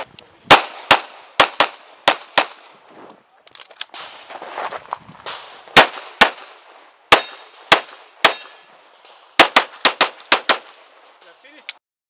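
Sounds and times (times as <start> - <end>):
pistol shots: 0.5 - 2.7, 5.3 - 11.3.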